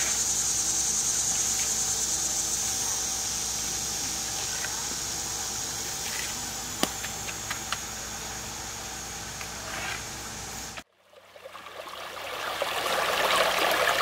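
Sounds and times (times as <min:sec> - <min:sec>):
high insect drone: 0:00.0 - 0:10.8.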